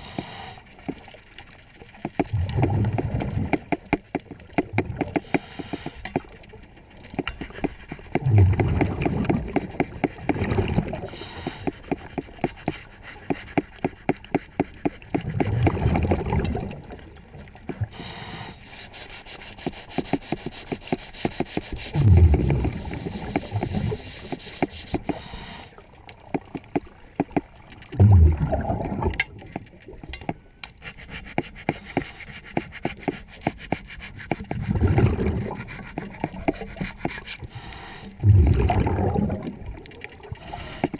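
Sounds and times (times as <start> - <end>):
underwater breath bubbles: 2.2 - 3.6, 7.4 - 17.0, 21.9 - 25.8, 27.9 - 29.9, 34.3 - 40.9
scraper rubbing on hull: 7.2 - 10.5, 11.3 - 15.9, 18.6 - 25.3, 30.8 - 37.5.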